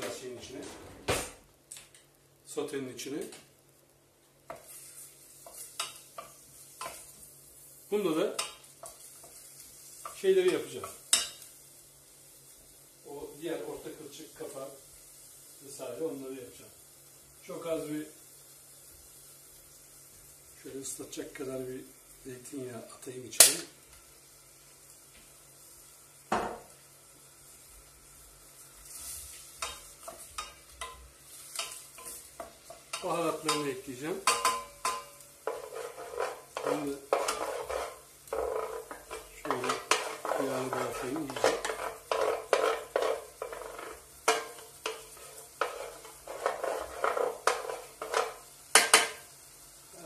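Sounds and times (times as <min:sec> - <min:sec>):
faint sizzle: 0:00.0 - 0:50.0
spatula scraping frying pan: 0:04.5 - 0:07.7, 0:28.8 - 0:49.3
spatula knocking on pan: 0:26.3 - 0:26.7, 0:31.6 - 0:49.2
wooden spoon stirring in pot: 0:28.8 - 0:49.2
spoon knocking on pot: 0:34.2 - 0:35.7.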